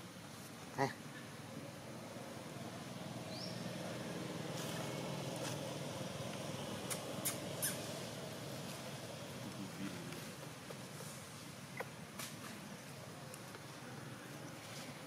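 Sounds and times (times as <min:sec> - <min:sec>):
low outdoor rumble: 0:00.9 - 0:15.0
dry leaves crackling: 0:04.5 - 0:06.5.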